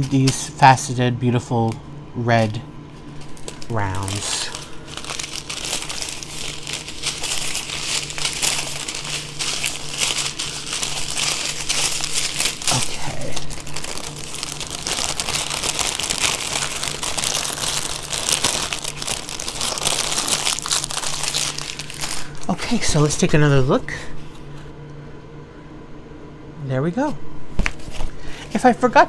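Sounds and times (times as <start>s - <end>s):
plastic bags crinkling: 2.9s - 23.0s.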